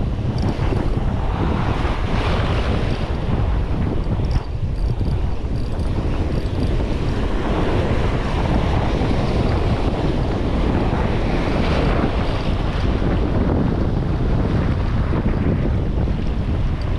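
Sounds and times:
surf washing over rocks: 0.0 - 16.9
wind on microphone: 0.0 - 16.9.

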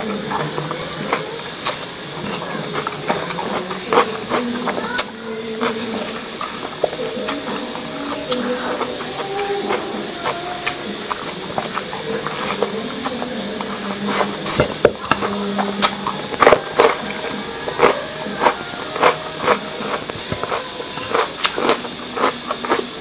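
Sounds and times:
noodles slurped and chewed: 0.0 - 23.0
mouth clicks and smacks: 0.1 - 7.4.

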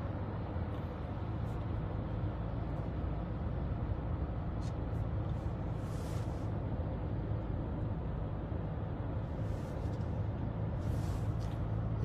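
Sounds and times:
car cabin road noise: 0.0 - 12.0
faint rustles: 4.6 - 6.6, 9.2 - 11.9.

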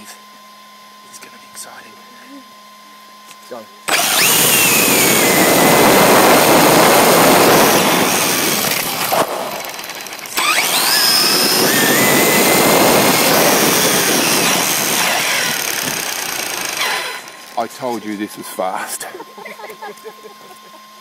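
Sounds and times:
rc car motor whining: 3.9 - 18.3
wind and road rush: 4.0 - 9.9, 10.6 - 16.1.

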